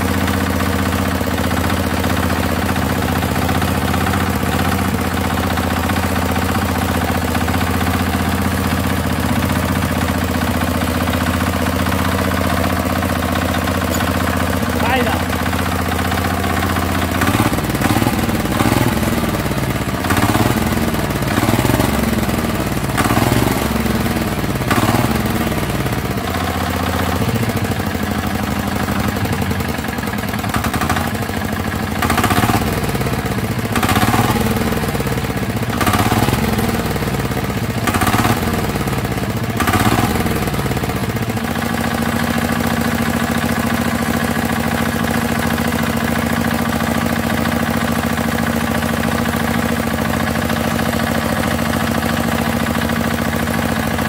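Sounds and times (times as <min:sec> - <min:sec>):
tractor engine revving and idling: 0:00.0 - 0:54.0.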